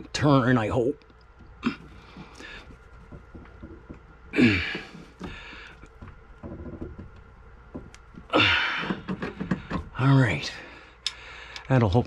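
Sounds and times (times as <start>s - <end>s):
man grunting with effort: 4.3s - 5.0s, 8.3s - 8.8s.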